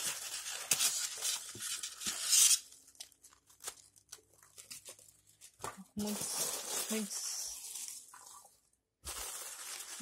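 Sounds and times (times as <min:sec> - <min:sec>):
polystyrene foam scraping and crunching: 0:06.0 - 0:10.0.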